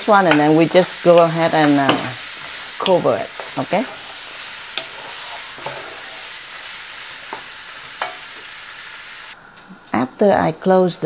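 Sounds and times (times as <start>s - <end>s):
chicken sizzling in oil: 0.0s - 10.0s
spatula clicking and scraping: 1.9s - 6.3s.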